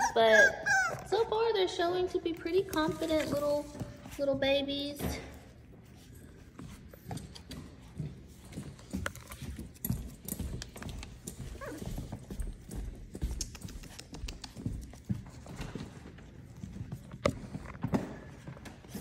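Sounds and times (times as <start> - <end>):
puppy claws tapping on wood floor: 7.1 - 15.9.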